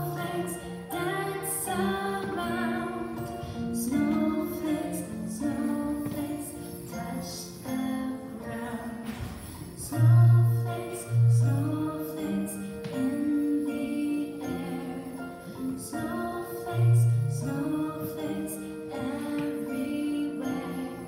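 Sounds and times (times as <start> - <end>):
children's choir singing: 0.0 - 21.0
musical accompaniment: 0.0 - 21.0.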